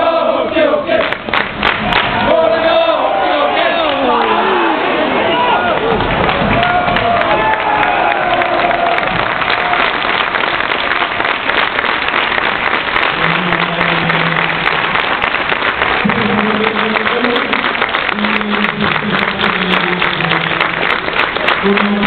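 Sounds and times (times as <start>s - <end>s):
crowd chanting in unison: 0.0s - 5.8s
crowd clapping: 0.9s - 22.0s.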